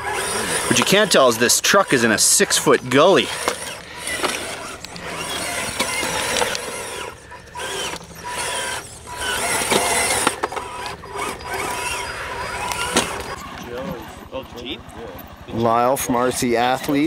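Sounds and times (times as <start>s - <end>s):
toy truck motor whining: 0.0s - 17.0s
sharp clicks: 2.6s - 13.4s.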